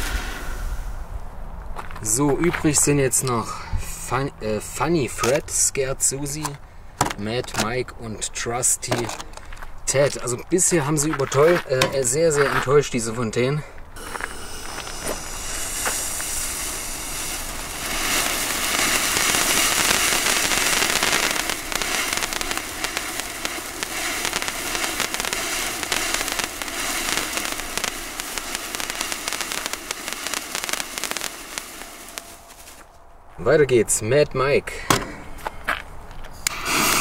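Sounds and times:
firework fountain hissing and crackling: 0.0 - 1.2, 14.0 - 32.9, 36.4 - 37.0.

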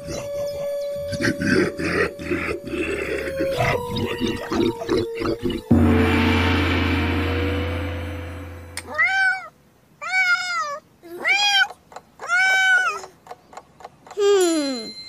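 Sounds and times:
low ringing tone: 3.4 - 9.0
cartoon cat meowing: 8.9 - 13.0.

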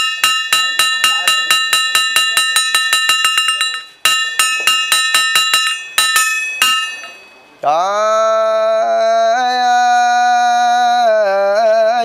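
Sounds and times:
metal hand bell ringing: 0.0 - 7.5.

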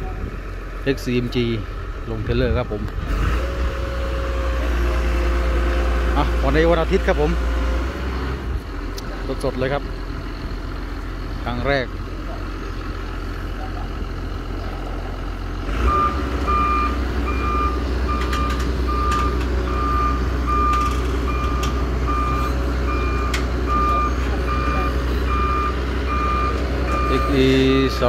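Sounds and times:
diesel engine: 0.0 - 28.0
backup alarm beeping: 15.8 - 27.5.

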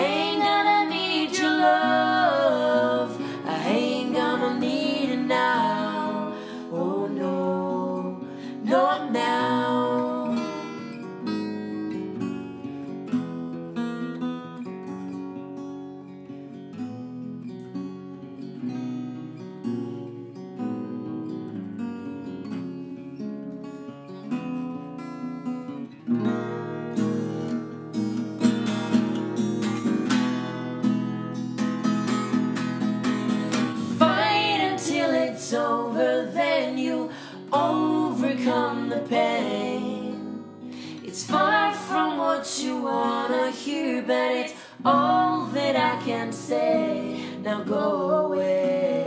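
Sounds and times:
acoustic guitar strumming: 0.0 - 6.8, 7.5 - 49.0
wordless singing: 0.0 - 10.6, 33.8 - 49.0.

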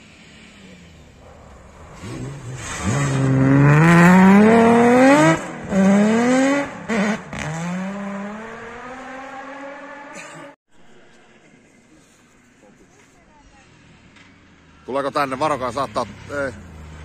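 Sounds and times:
rally car accelerating with gearshifts: 1.3 - 10.5.

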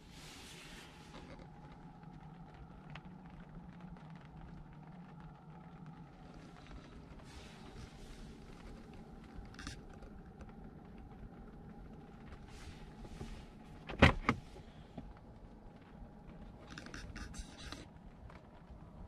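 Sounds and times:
faint rattling and rustling: 0.0 - 19.0
low steady rumble: 0.0 - 19.0
car clunks: 13.1 - 14.6.

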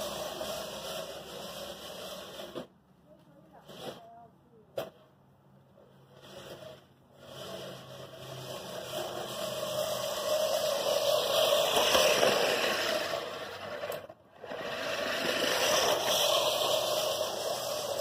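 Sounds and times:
reel mower blades whirring: 0.0 - 2.7, 6.1 - 18.0.

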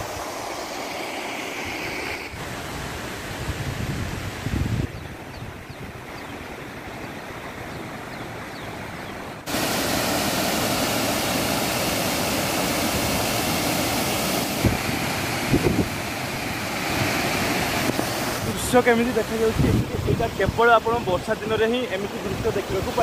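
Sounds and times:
outdoor hiss: 0.0 - 4.8, 9.4 - 23.0
wind thumps on microphone: 3.3 - 6.0, 14.5 - 18.7, 19.4 - 21.1
water pouring over spillway: 9.5 - 23.0.

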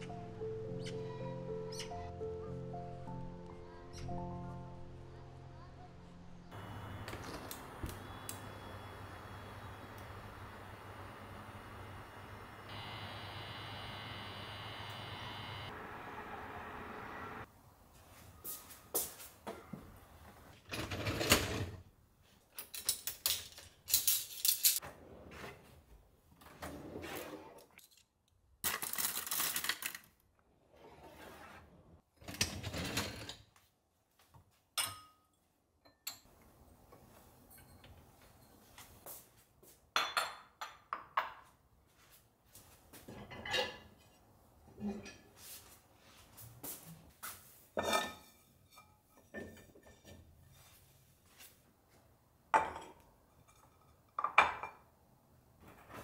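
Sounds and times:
dishes and utensils clinking: 34.8 - 36.3, 37.4 - 38.9, 43.1 - 44.2, 47.8 - 50.8.

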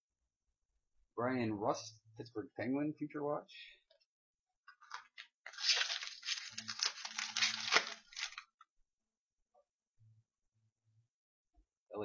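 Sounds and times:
foil wrapper tearing and crinkling: 4.8 - 8.5.

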